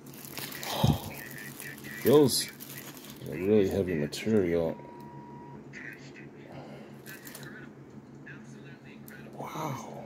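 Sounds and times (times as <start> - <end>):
handling and rustling noises: 0.0 - 4.5, 7.0 - 7.6
steady low hum: 0.0 - 10.0.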